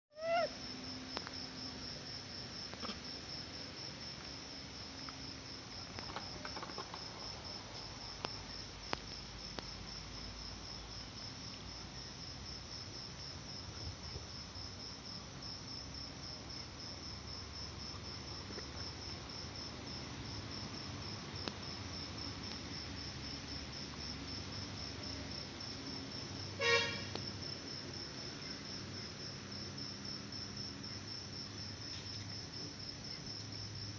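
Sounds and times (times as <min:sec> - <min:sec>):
cricket chirping: 0:00.1 - 0:33.9
brief horn-like toot: 0:26.6 - 0:27.2.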